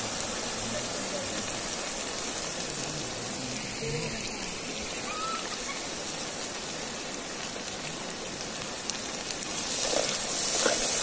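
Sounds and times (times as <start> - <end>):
hot oil sizzling in a pot: 0.0 - 11.0.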